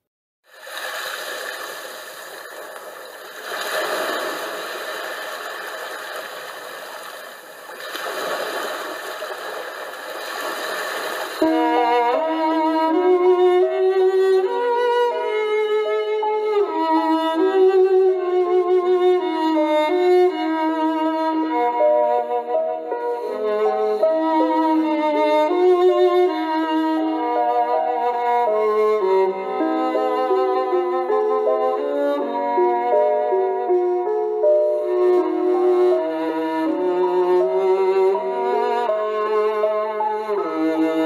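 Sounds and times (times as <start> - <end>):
water rushing over rocks: 0.5 - 11.4
violin melody with accompaniment: 11.4 - 41.0.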